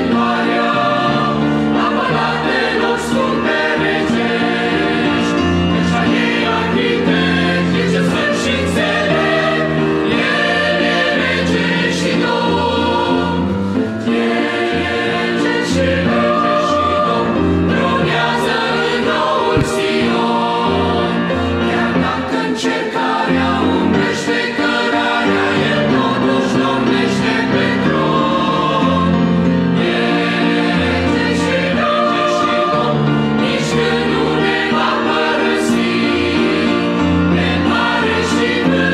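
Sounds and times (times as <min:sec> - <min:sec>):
choir singing a hymn: 0:00.0 - 0:38.9
grand piano accompaniment: 0:00.0 - 0:38.9.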